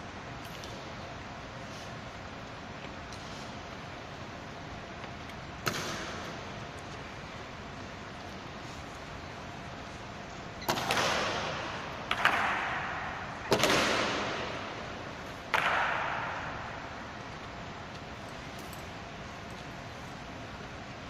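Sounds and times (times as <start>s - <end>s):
sharp echoing cracks: 5.6s - 6.6s, 10.7s - 17.3s.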